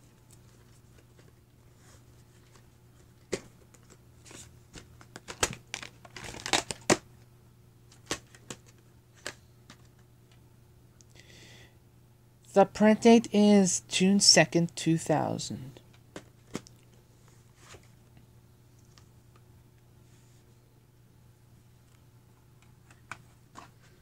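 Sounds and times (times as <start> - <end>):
crinkly plastic rustle: 0.1 - 7.0.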